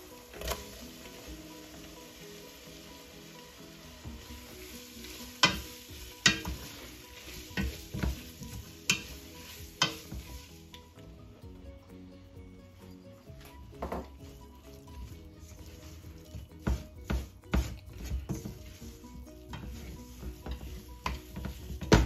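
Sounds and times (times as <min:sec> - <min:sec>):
food sizzling in a pan: 0:00.0 - 0:11.4, 0:12.8 - 0:22.0
wooden spoon knocking on pan: 0:05.3 - 0:06.9, 0:07.5 - 0:09.2, 0:09.8 - 0:10.5, 0:13.7 - 0:14.3, 0:16.4 - 0:18.8, 0:19.5 - 0:22.0.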